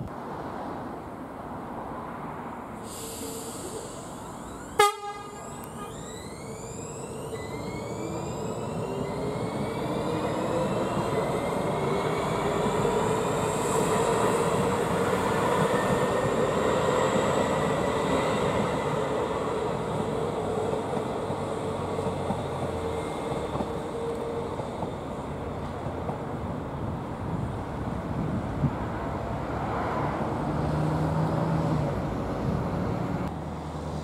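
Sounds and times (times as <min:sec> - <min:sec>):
wheels rumbling on track: 0:02.7 - 0:34.0
metro train motors whining: 0:02.9 - 0:28.4.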